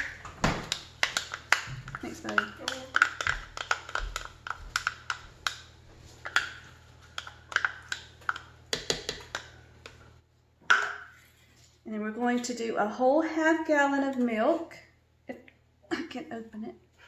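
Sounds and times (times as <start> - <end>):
spatula scraping and tapping cup: 0.0 - 10.0.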